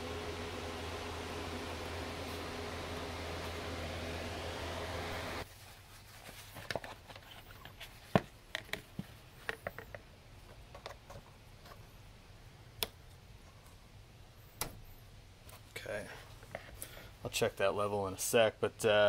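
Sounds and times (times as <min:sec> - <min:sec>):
plastic clicks and knocks: 0:08.1 - 0:11.2.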